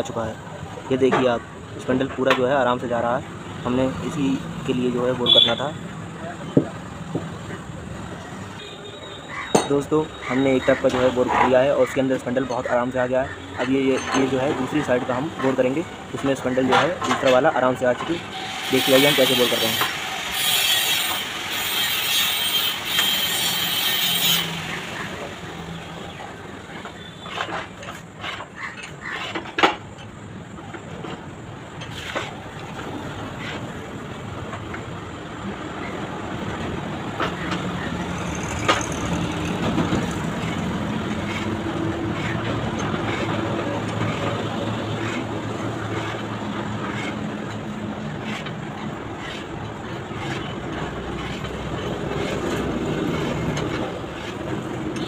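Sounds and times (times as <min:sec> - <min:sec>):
loud metal scraping: 0:18.0 - 0:26.0, 0:37.3 - 0:55.0.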